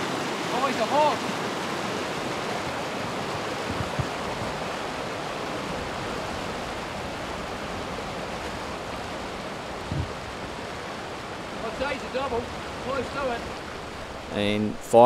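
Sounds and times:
river water rushing over rocks: 0.0s - 14.7s
low thumps: 9.8s - 10.4s.

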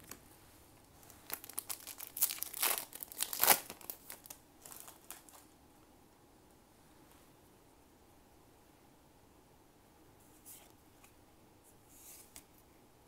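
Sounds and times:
foil pack crinkling and tearing: 1.2s - 5.5s.

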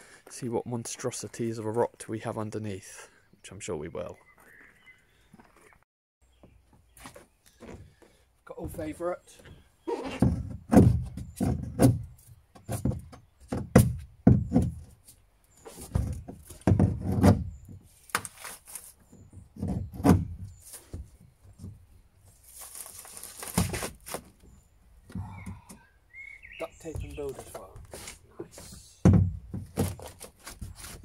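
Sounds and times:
scraping rub: 27.4s - 28.2s, 29.9s - 31.0s.

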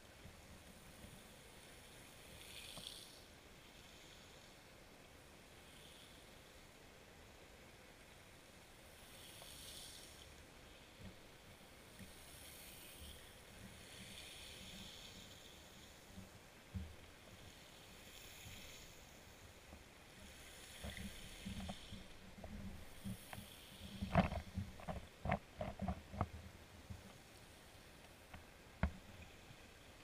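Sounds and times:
low underwater hiss: 0.0s - 30.0s
knocks and clicks underwater: 20.8s - 26.4s.

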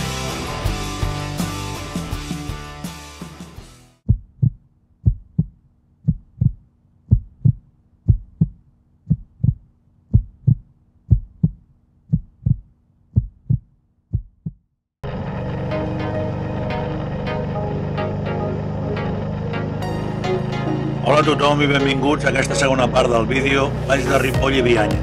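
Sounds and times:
music: 0.0s - 4.0s, 15.5s - 25.0s
heartbeat thumps: 4.1s - 14.7s, 24.4s - 25.0s.

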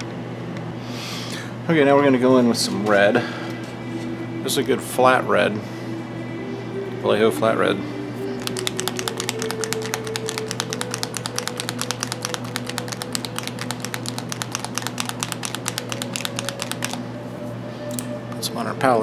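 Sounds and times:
background music: 3.8s - 19.0s.

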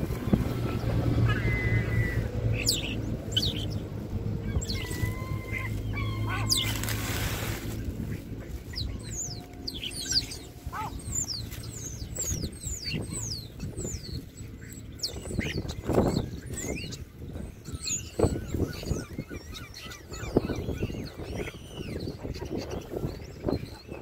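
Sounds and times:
starlings whistling: 0.0s - 24.0s
wings flapping: 4.6s - 12.5s.

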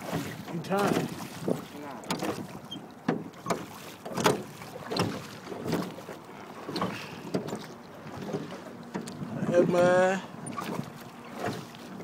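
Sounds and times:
oars knocking on metal hull: 0.0s - 12.0s
wind buffeting microphone: 8.1s - 10.9s.

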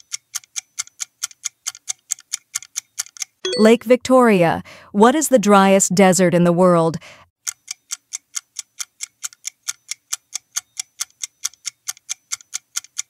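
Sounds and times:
clock-like timer ticking: 0.0s - 3.5s, 7.4s - 13.0s.

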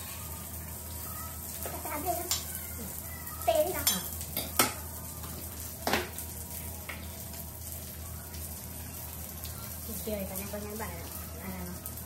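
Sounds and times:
food sizzling on grill pan: 0.0s - 12.0s
utensils clinking on pan: 3.6s - 6.2s.

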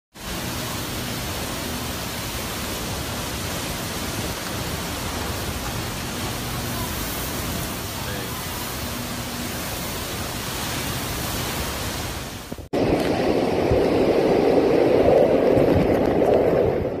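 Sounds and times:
driving rain: 0.1s - 17.0s
hurricane wind: 0.1s - 17.0s.

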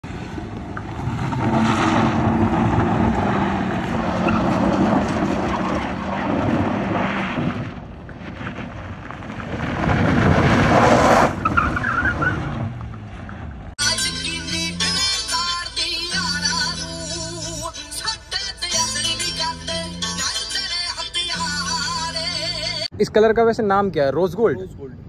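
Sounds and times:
car engine at high revs: 0.0s - 7.9s
tyres scrabbling on dirt: 0.1s - 13.7s.

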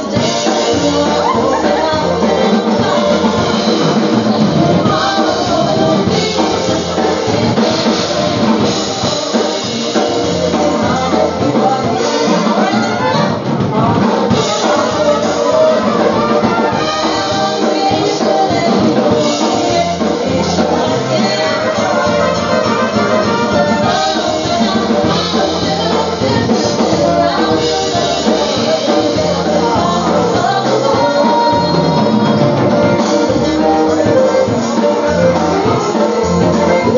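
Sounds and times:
drum kit beat: 0.0s - 36.9s
trumpets playing polka: 0.0s - 36.9s.

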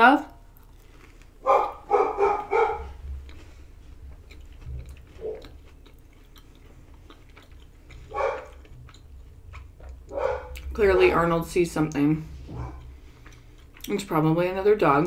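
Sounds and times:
dog barking: 1.4s - 3.0s, 5.2s - 5.5s, 8.1s - 8.7s, 10.1s - 11.1s, 12.5s - 12.8s.

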